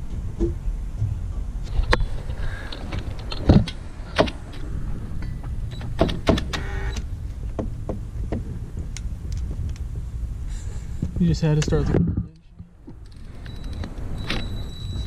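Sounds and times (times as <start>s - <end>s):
sharp knocks and clicks: 2.7s - 4.6s, 5.2s - 9.9s, 11.0s - 14.5s.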